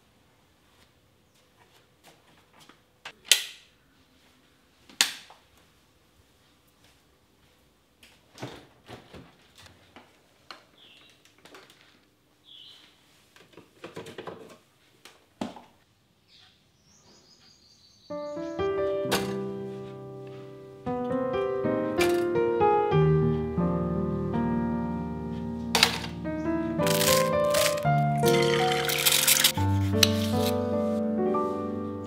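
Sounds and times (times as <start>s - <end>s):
front door shutting: 19.0s - 19.6s.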